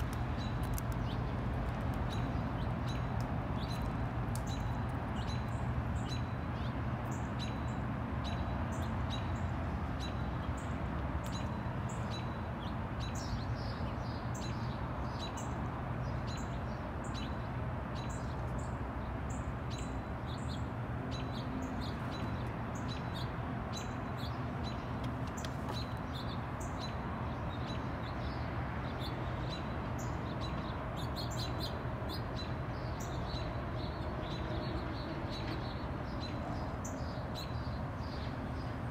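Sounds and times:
songbirds chirping: 0:00.0 - 0:38.9.

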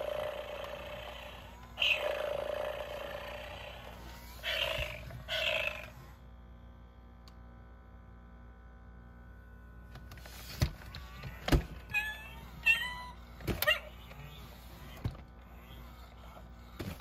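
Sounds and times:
faint steady hum: 0:00.0 - 0:17.0
toy cat electronic meows: 0:01.8 - 0:03.8, 0:11.0 - 0:16.4.

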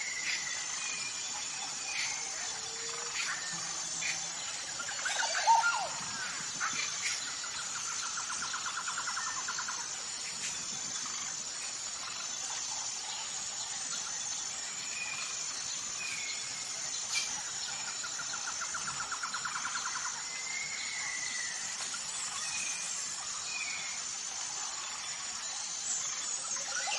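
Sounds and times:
birds calling: 0:00.0 - 0:09.4
insect drone: 0:00.0 - 0:26.9
steady high hiss: 0:00.0 - 0:26.9.

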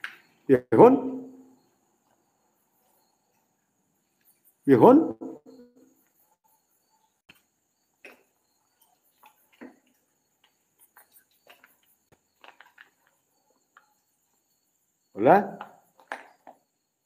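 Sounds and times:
faint high-pitched tone: 0:04.7 - 0:06.6
footsteps on rubble: 0:09.1 - 0:13.7.

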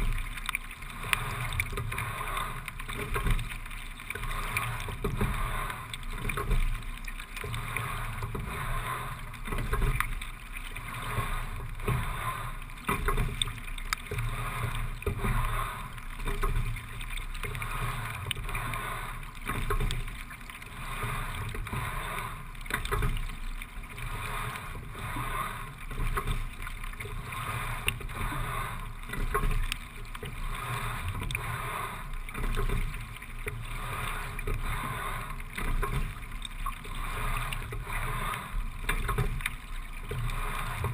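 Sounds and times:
rowing strokes with knocks: 0:00.0 - 0:40.9
rush of water: 0:00.0 - 0:40.9.

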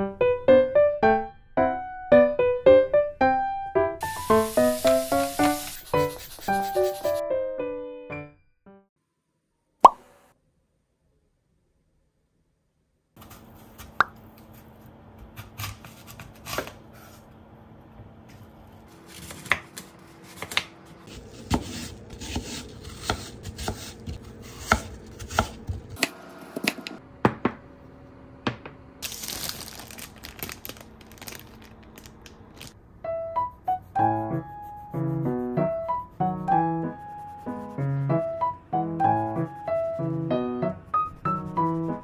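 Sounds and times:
soft piano music: 0:00.0 - 0:05.6, 0:06.8 - 0:08.9, 0:32.8 - 0:42.0.

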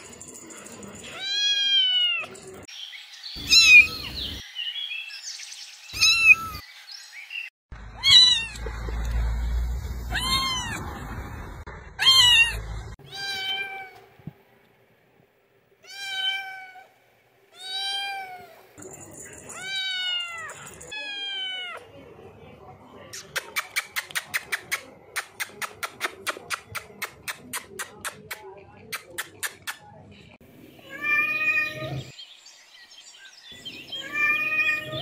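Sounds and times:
kittens meowing: 0:03.4 - 0:04.2, 0:06.0 - 0:06.6, 0:08.0 - 0:08.7, 0:10.1 - 0:10.8, 0:12.0 - 0:14.0.

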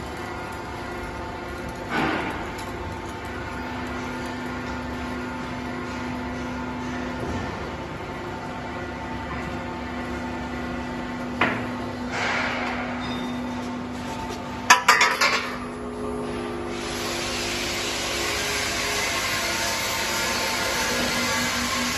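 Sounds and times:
pipe rounding machine hum: 0:00.0 - 0:21.9
metal tube clattering on concrete: 0:14.7 - 0:15.7.

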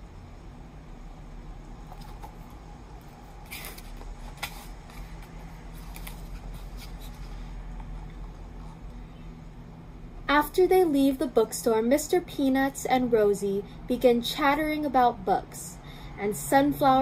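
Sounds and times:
low steady hum: 0:00.0 - 0:17.0
book pages turning: 0:01.8 - 0:08.8
paper rustling: 0:01.9 - 0:08.1.

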